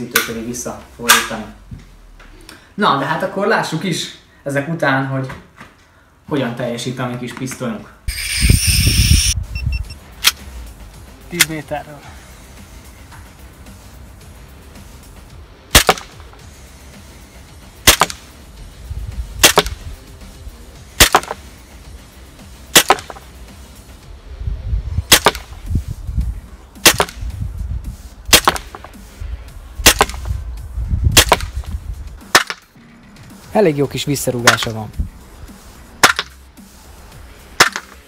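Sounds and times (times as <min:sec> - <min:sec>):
airsoft pistol shots: 0:15.7 - 0:16.3, 0:17.8 - 0:18.2, 0:19.4 - 0:19.8, 0:21.0 - 0:21.4, 0:22.7 - 0:23.2, 0:25.1 - 0:25.6, 0:26.8 - 0:27.2, 0:28.3 - 0:28.9, 0:29.8 - 0:30.3, 0:31.1 - 0:31.7, 0:32.3 - 0:32.6, 0:36.0 - 0:36.4, 0:37.6 - 0:38.0.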